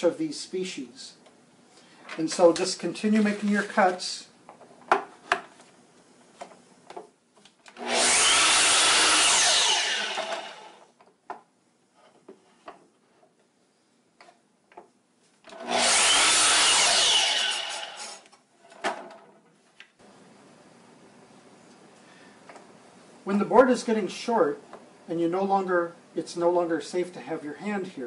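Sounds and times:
miter saw cutting wood: 7.8s - 10.8s, 15.6s - 18.2s.

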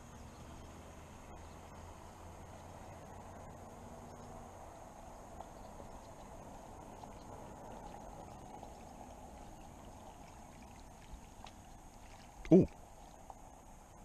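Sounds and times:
faint rushing noise: 0.0s - 14.0s.

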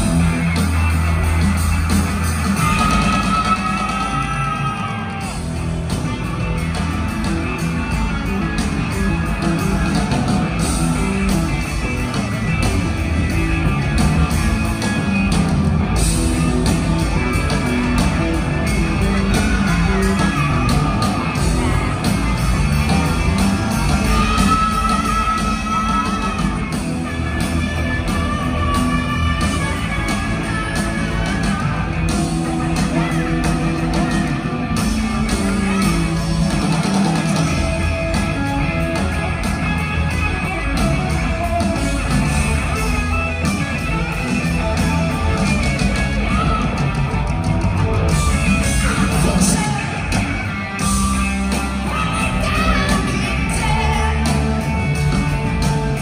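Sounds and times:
live rock band playing: 0.0s - 56.0s.

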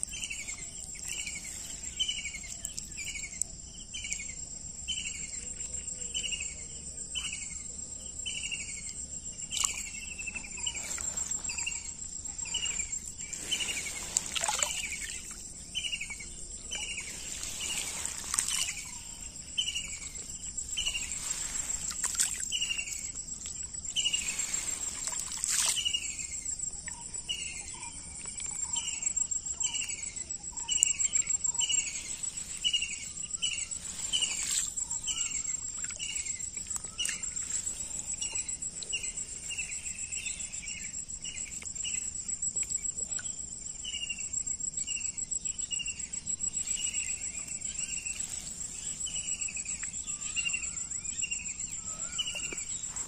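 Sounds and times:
bird chirping: 0.0s - 42.1s, 42.8s - 53.0s
insects trilling: 0.0s - 53.0s
water swishing: 9.5s - 26.2s.

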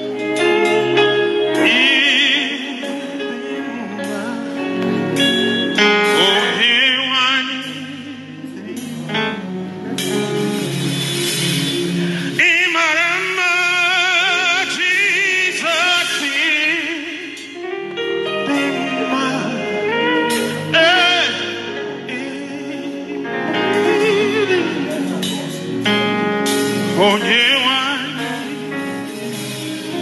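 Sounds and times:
man singing into a microphone: 0.0s - 9.4s, 11.7s - 26.1s, 26.8s - 30.0s
sustained instrumental chords: 0.0s - 30.0s.

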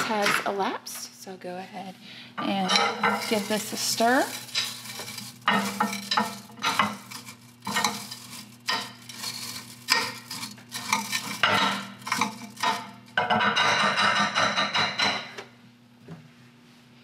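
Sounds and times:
metal utensil scraping bowl: 2.4s - 15.2s.

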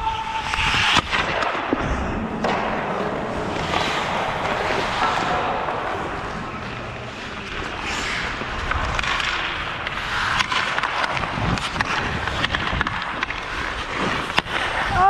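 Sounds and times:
skate blades scraping ice: 0.2s - 15.0s
hockey stick clicking on puck: 3.5s - 15.0s.

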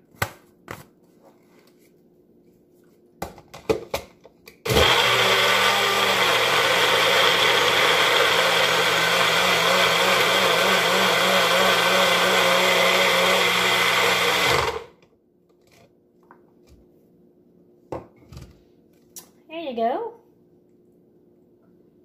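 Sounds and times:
blender motor running: 4.7s - 15.0s.

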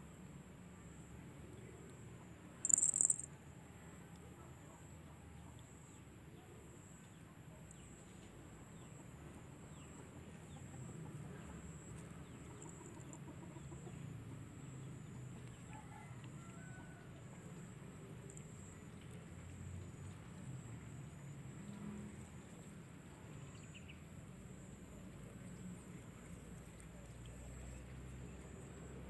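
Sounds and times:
high-pitched insect drone: 2.7s - 3.3s.

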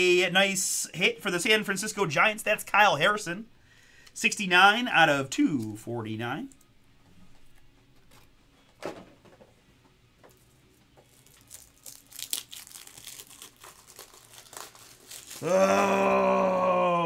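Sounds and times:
card packaging crinkling: 10.3s - 15.4s
man saying oh man: 15.4s - 17.0s.

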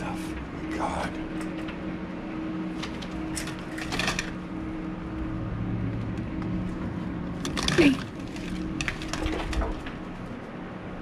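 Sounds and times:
steady low hum: 0.0s - 11.0s
rustling clatters: 2.6s - 4.9s, 6.0s - 10.5s.

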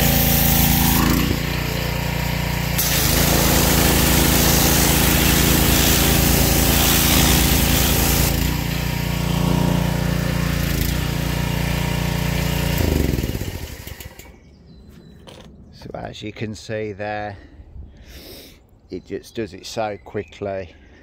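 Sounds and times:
water spray hissing on concrete: 0.0s - 2.0s, 2.6s - 8.8s
pressure washer engine running: 0.0s - 14.4s.

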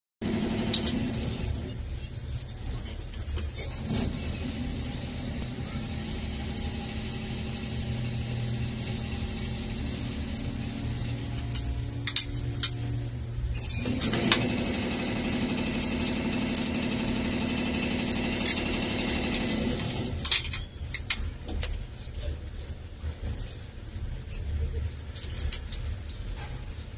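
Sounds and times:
router motors humming: 13.9s - 20.2s.

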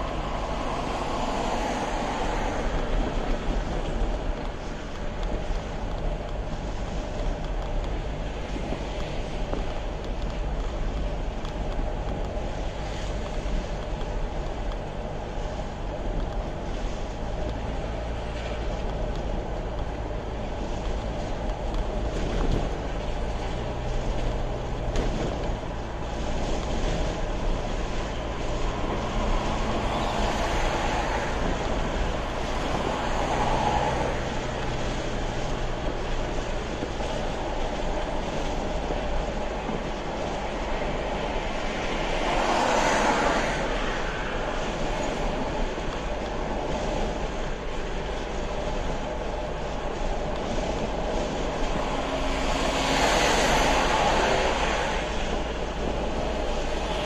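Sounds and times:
car road and engine rumble: 0.0s - 57.0s.

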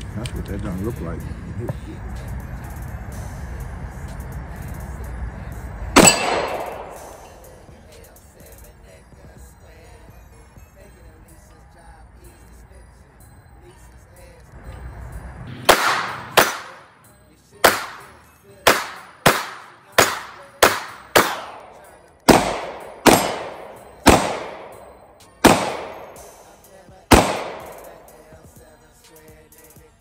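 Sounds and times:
pistol shots echoing: 6.0s - 7.6s, 15.6s - 16.9s, 17.6s - 26.4s, 27.1s - 28.3s.

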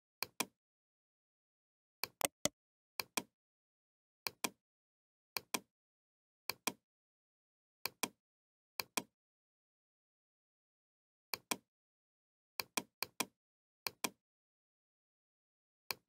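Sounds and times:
computer mouse button clicking: 2.2s - 2.5s.

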